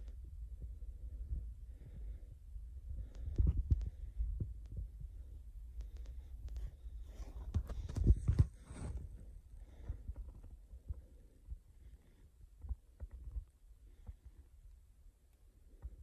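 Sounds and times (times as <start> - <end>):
sharp clicks and crackles: 5.7 - 8.4.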